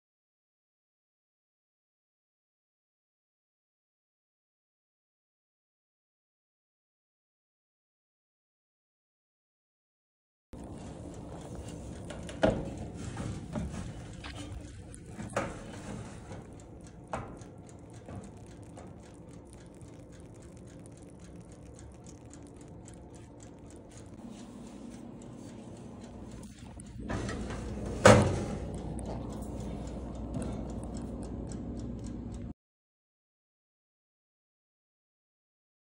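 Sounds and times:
faint rapid clicking: 10.6s - 32.5s
steady low hum: 10.6s - 32.5s
baking pan clicking on wire rack: 27.0s - 29.0s
oven door clunk: 27.1s - 28.7s.

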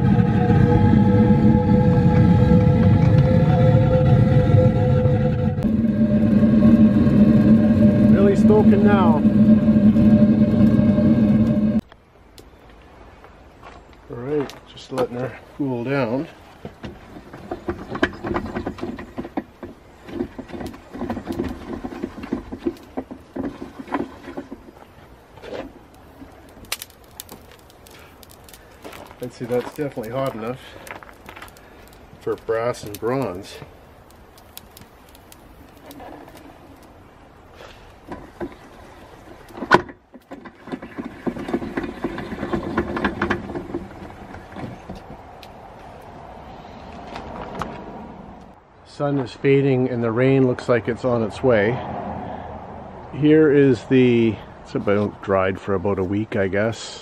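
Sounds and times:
propane burner rumbling: 0.0s - 11.9s, 14.3s - 47.5s.

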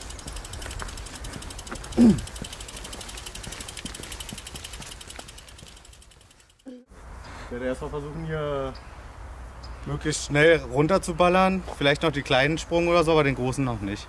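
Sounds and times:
rolling tyres rustling: 0.0s - 6.7s
bicycle freehub ticking: 0.0s - 6.8s.

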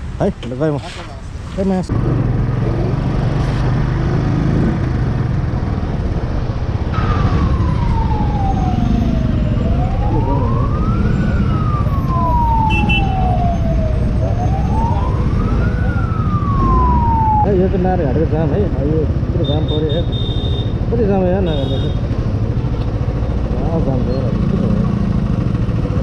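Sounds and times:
wind: 0.0s - 26.0s
motorcycle engine rumble: 4.7s - 26.0s
emergency vehicle siren wailing: 6.7s - 19.8s.

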